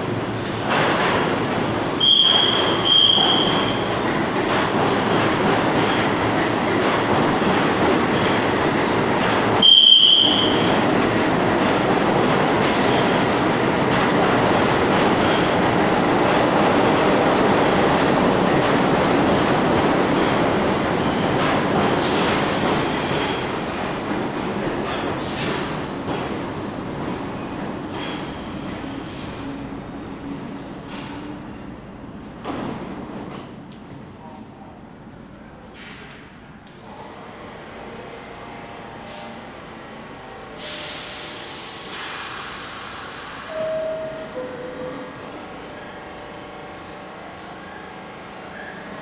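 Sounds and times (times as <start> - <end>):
subway train wheels rumbling: 0.0 - 49.0
hiss of air: 40.6 - 43.5.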